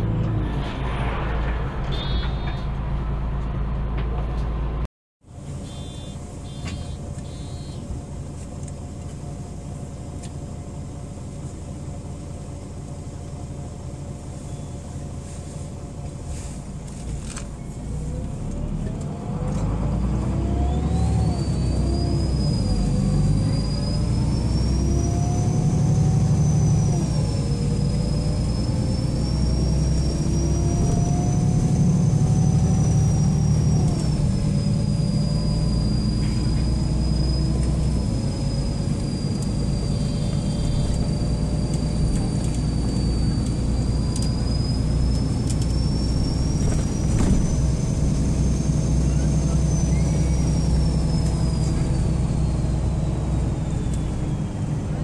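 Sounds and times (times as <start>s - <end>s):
bus diesel engine: 0.0s - 55.0s
high gearbox whine: 5.6s - 7.9s, 26.4s - 54.9s.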